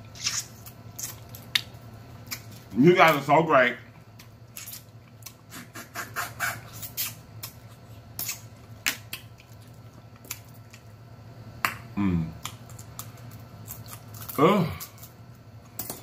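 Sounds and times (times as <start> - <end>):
wet mouth smacking and sucking: 0.2 - 1.1, 4.6 - 7.6
person humming: 12.0 - 12.4, 14.4 - 14.8.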